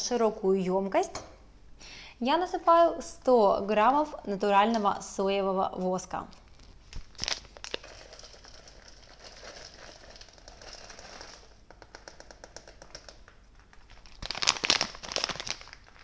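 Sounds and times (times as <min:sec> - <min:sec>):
wax flakes pouring: 0:06.4 - 0:16.0.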